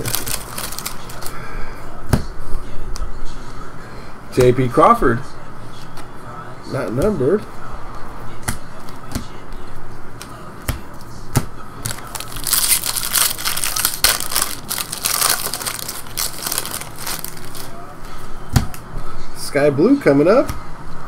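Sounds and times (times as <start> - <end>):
foil wrapper crinkling: 0.0 - 1.4, 11.9 - 17.9.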